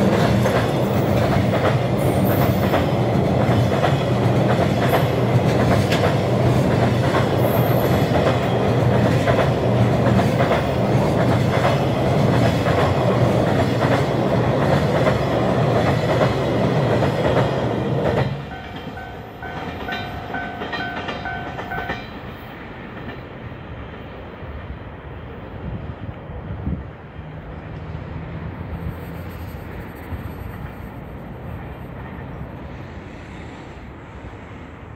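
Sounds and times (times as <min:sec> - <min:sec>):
freight train rumbling past: 0:00.0 - 0:34.9
level-crossing warning bell: 0:18.4 - 0:22.3.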